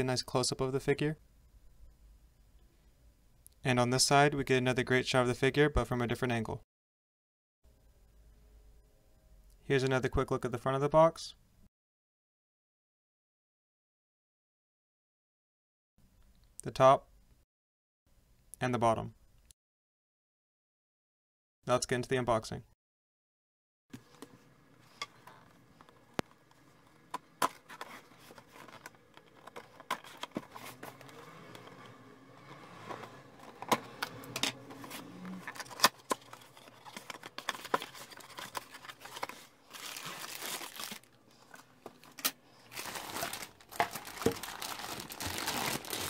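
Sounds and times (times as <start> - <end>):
plastic bags crinkling: 24.8 - 32.0, 32.9 - 46.0.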